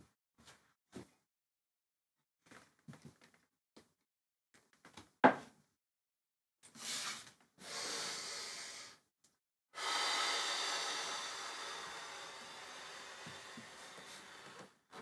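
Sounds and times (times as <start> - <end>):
person breathing deeply: 7.6 - 9.0, 9.8 - 14.7.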